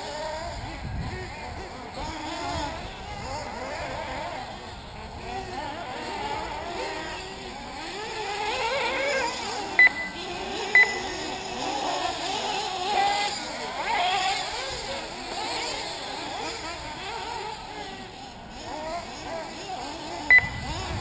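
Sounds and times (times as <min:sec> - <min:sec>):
rc buggy engines buzzing: 0:00.0 - 0:21.0
loud electronic beep: 0:09.8 - 0:10.2, 0:10.8 - 0:11.1, 0:20.3 - 0:20.7.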